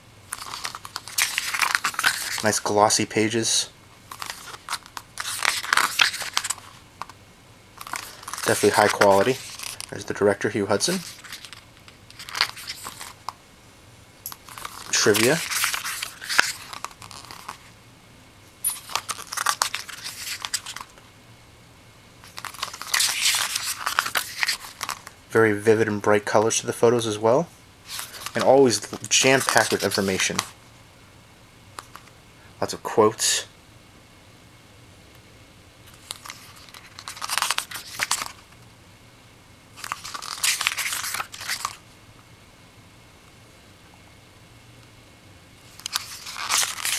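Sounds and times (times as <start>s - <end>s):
book pages turning: 0.3s - 2.8s, 4.1s - 7.2s, 7.8s - 13.4s, 14.4s - 17.7s, 18.7s - 21.0s, 22.2s - 25.1s, 27.9s - 30.6s, 35.9s - 38.4s, 39.8s - 41.8s, 45.7s - 46.9s.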